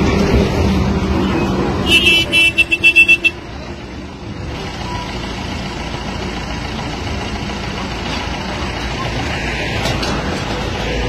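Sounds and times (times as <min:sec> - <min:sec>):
vehicle engine and street noise: 0:00.0 - 0:11.0.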